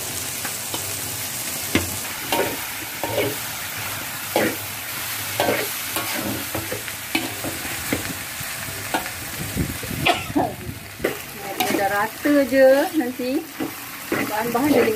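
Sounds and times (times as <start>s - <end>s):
rice sizzling in a wok: 0.0s - 14.9s
metal fork scraping a pan: 2.3s - 3.4s, 4.4s - 4.6s, 5.4s - 7.5s, 13.5s - 14.9s.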